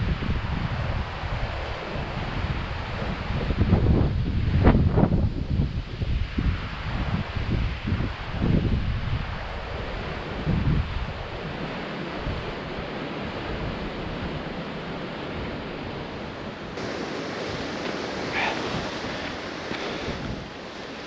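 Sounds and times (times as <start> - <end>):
wind on microphone: 0.0 - 21.0
surf breaking on rocks: 11.4 - 21.0.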